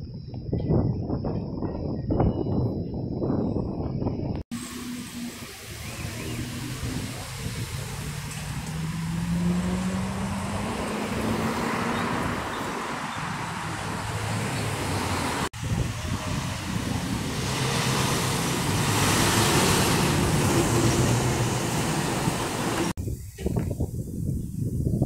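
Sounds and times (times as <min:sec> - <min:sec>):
cars passing: 0:04.5 - 0:23.0
truck passing close: 0:04.5 - 0:23.0.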